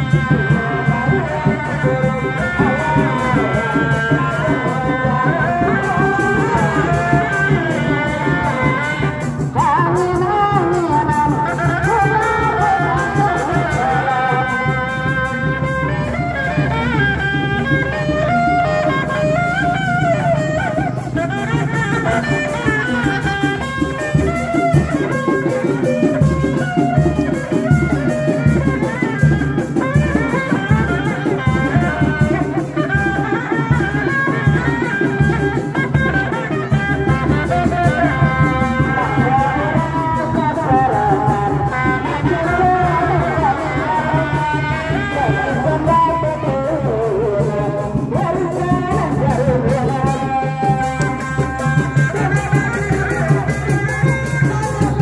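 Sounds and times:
drums beating: 0:00.0 - 0:55.0
rattling percussion: 0:00.0 - 0:55.0
wavering folk melody: 0:00.0 - 0:55.0.

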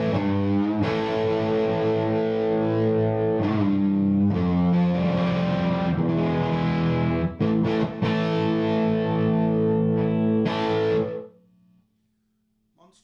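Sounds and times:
electric guitar chords: 0:00.0 - 0:11.4.

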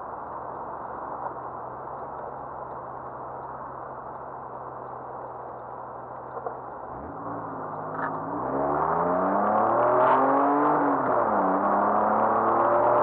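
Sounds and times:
car engine revving and accelerating: 0:06.9 - 0:13.0.

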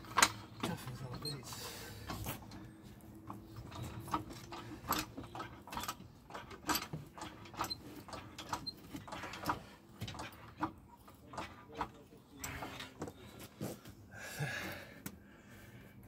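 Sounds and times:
trolley jack pump clicking: 0:03.3 - 0:12.8.

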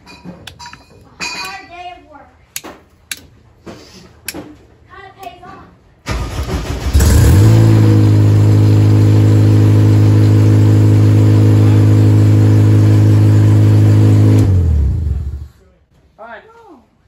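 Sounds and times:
race car engine running loudly: 0:06.8 - 0:15.5.

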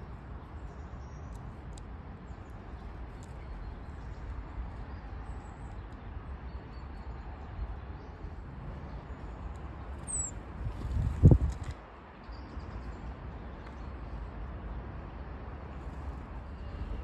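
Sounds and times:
low city rumble: 0:00.0 - 0:17.0.

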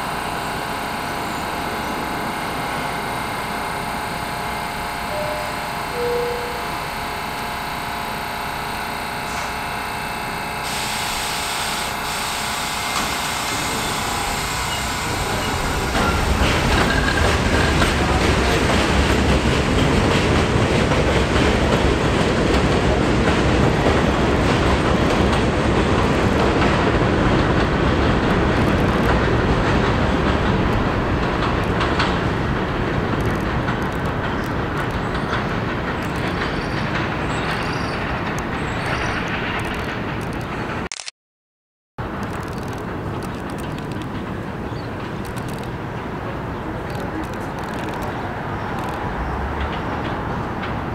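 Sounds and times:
steady whine: 0:00.0 - 0:17.5
heavy train rumble: 0:00.0 - 0:40.9, 0:42.0 - 0:50.9
train wheels clattering over rails: 0:13.0 - 0:40.8, 0:42.0 - 0:50.9.

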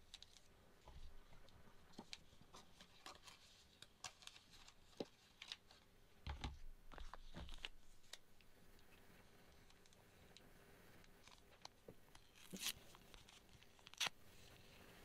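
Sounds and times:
plastic packaging crinkling: 0:11.2 - 0:14.2.

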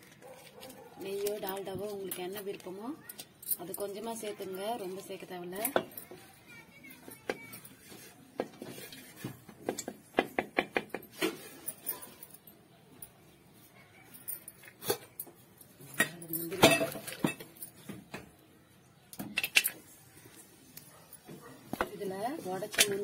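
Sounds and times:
metal utensils and pots clinking: 0:00.0 - 0:06.3, 0:14.0 - 0:18.3, 0:19.1 - 0:23.0.

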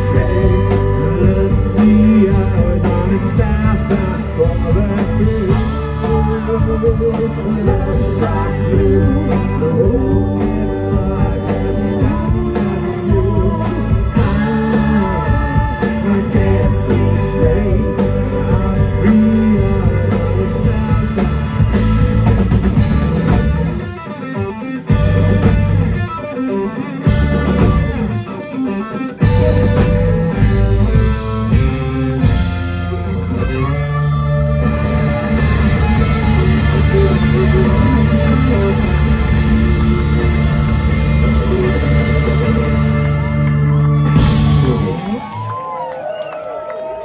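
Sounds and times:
person singing: 0:00.0 - 0:24.0, 0:33.4 - 0:45.3
live rock band playing: 0:00.0 - 0:47.0.

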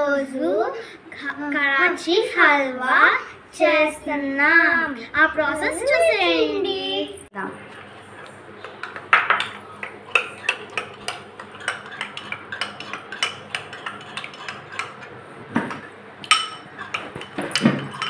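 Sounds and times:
spoon clinking in glass bowl: 0:16.3 - 0:18.0.

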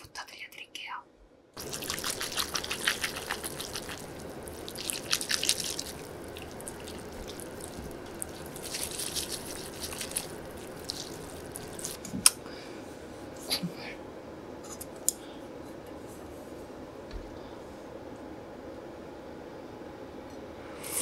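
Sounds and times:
noodles stirred with chopsticks: 0:01.6 - 0:12.1.

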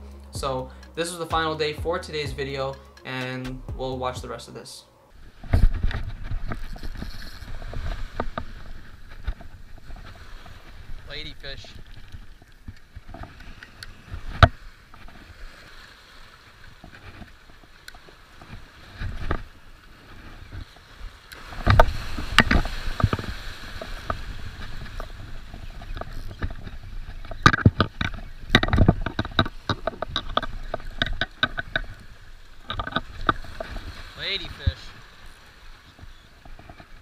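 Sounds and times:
fishing reel clicking: 0:00.0 - 0:01.3, 0:02.1 - 0:03.4, 0:06.6 - 0:07.6
waves splashing over rocks: 0:00.0 - 0:37.0.

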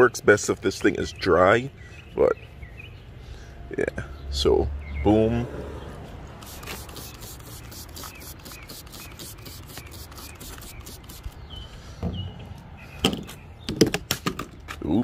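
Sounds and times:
rubbing strokes on car window glass: 0:06.4 - 0:11.5.

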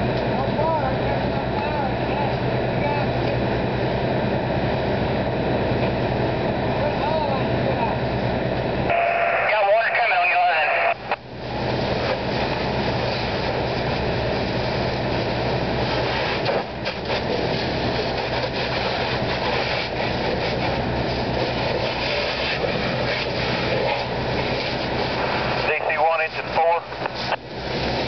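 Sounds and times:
fire hose spraying: 0:08.9 - 0:28.0.

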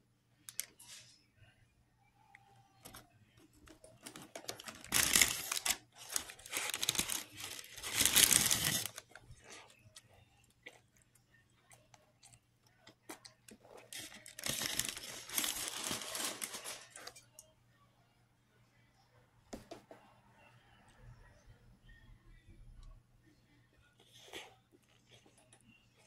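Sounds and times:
foil wrapper crinkling and tearing: 0:04.0 - 0:09.2, 0:13.9 - 0:17.2.

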